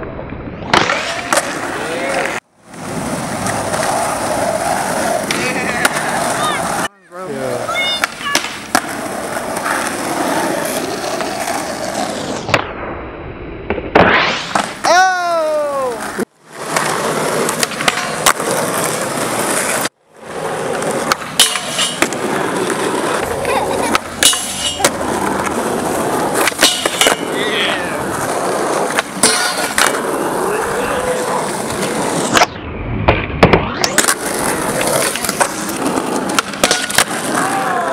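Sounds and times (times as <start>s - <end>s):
skateboard wheels rolling on asphalt: 0.0s - 37.9s
skateboard snap: 0.6s - 2.4s, 7.8s - 9.0s, 15.7s - 19.0s, 31.7s - 37.9s.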